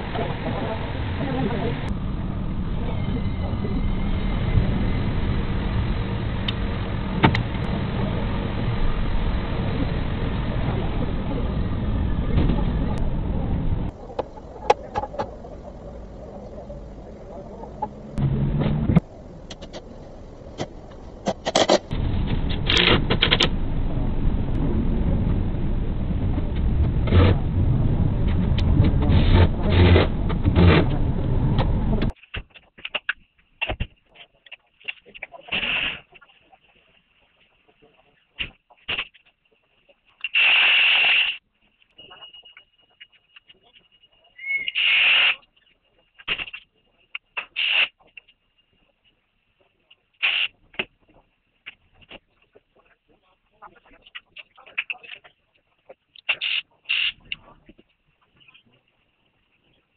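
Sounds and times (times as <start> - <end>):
low workshop hum: 0.0 - 32.2.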